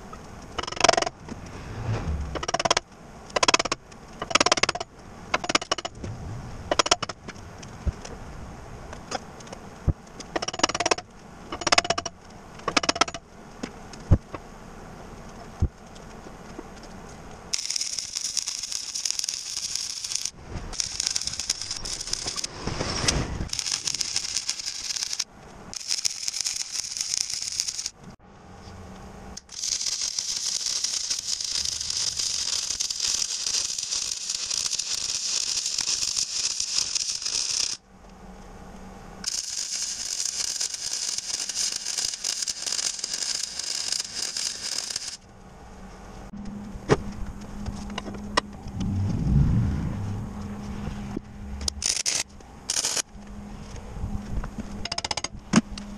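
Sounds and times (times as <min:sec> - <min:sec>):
arc welder crackling and hissing: 0:15.1 - 0:28.2, 0:29.3 - 0:37.8, 0:39.2 - 0:45.3, 0:51.2 - 0:53.8.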